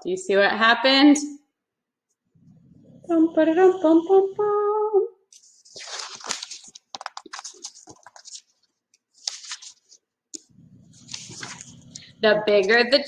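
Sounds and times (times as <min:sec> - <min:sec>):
book pages turning: 0:05.4 - 0:12.1.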